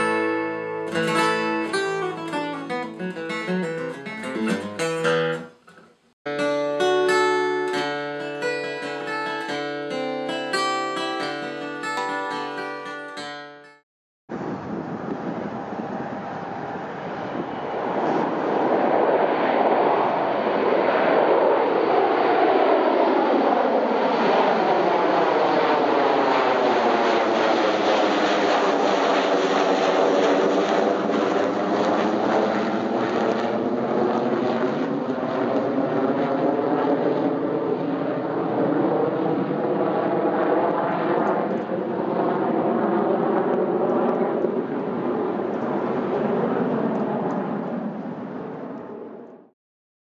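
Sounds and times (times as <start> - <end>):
jet plane passing overhead: 14.3 - 49.5.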